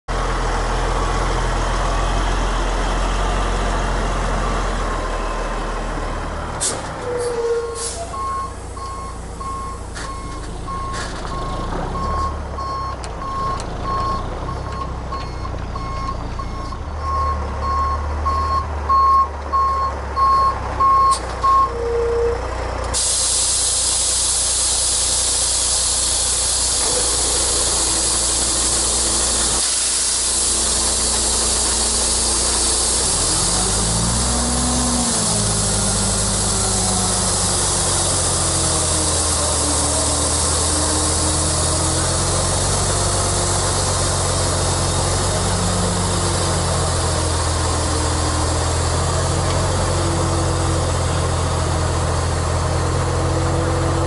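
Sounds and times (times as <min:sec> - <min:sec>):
diesel engine running: 0:00.1 - 0:54.0
reverse alarm beeping: 0:07.4 - 0:22.4
loud steady hiss: 0:23.0 - 0:33.9.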